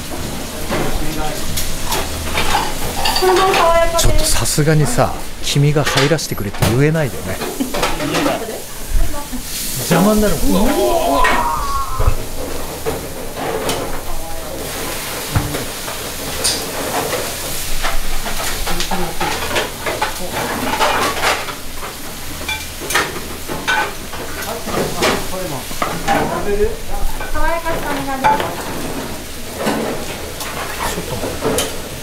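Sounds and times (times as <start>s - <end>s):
meat sizzling in skillets: 0.0s - 5.7s, 6.8s - 32.0s
pans clicking on grates: 12.1s - 26.5s, 27.1s - 32.0s.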